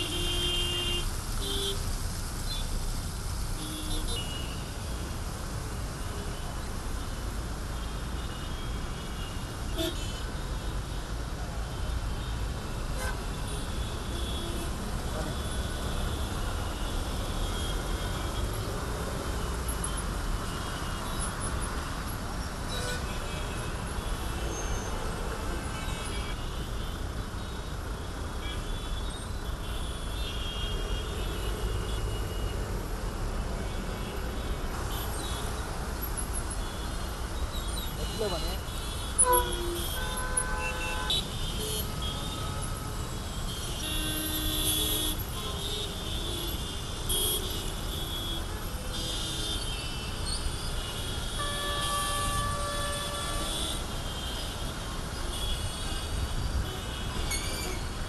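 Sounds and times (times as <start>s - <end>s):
idling traffic engines rumbling: 0.0s - 58.0s
horns honking: 37.6s - 57.8s.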